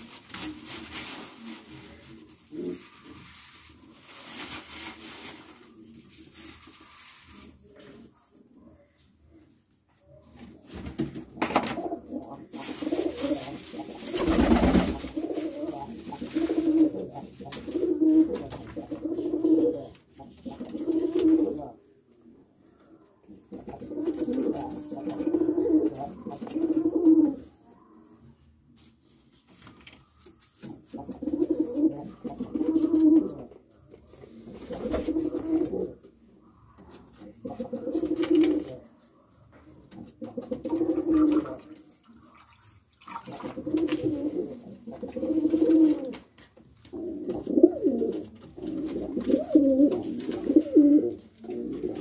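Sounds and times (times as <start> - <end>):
pigeons cooing: 23.6 - 27.4, 30.9 - 33.4, 43.4 - 46.2, 46.9 - 52.0.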